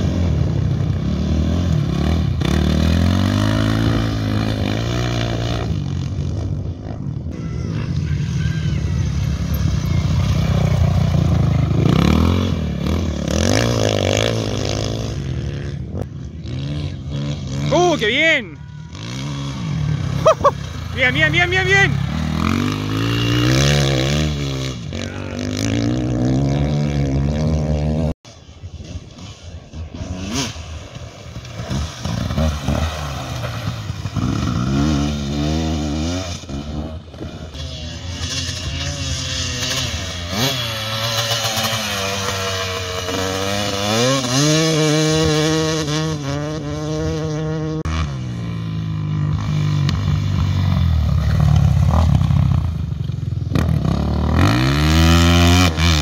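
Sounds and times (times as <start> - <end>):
motorcycle engines revving: 0.0 - 56.0.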